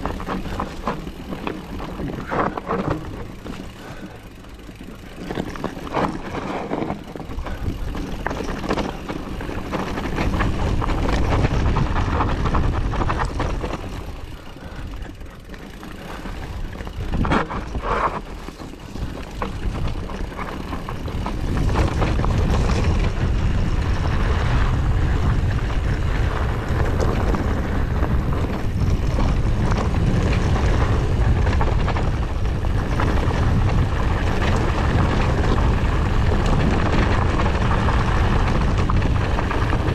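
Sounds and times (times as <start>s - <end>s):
wind rumbling on microphone: 0.0s - 4.2s, 4.8s - 39.9s
bike tyres and rattling: 0.0s - 39.9s.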